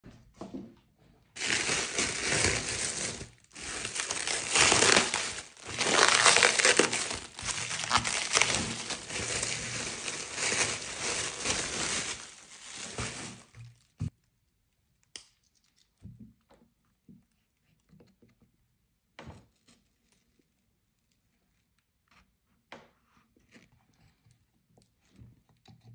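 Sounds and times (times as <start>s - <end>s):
paper crinkling and tearing: 1.4s - 13.6s.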